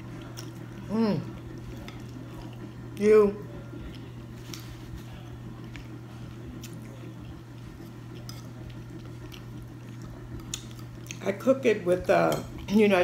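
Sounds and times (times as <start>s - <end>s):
person chewing food: 0.0s - 2.9s, 3.8s - 11.2s
steady low hum: 0.0s - 13.0s.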